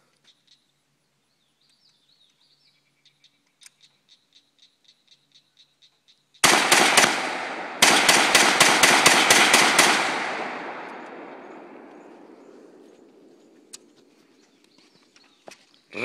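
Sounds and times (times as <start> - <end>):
gunshot echo: 6.4 - 13.4
rifle shots: 6.4 - 13.6.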